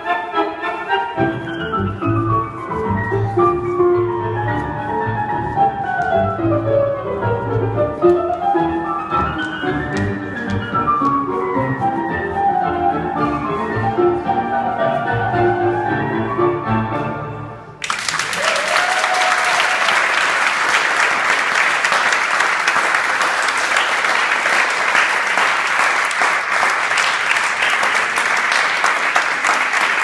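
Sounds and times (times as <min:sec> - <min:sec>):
tango orchestra playing: 0:00.0 - 0:17.8
audience applause: 0:17.8 - 0:30.0.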